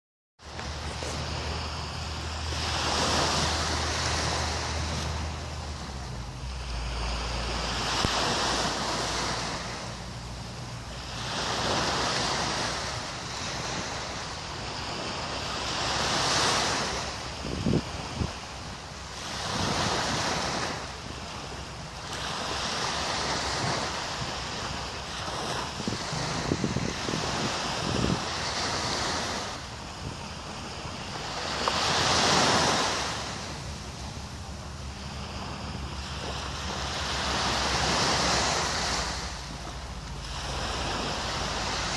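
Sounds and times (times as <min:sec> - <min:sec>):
small waves washing onto sand: 0:00.4 - 0:41.9
wind buffeting microphone: 0:16.8 - 0:18.8, 0:25.5 - 0:31.4.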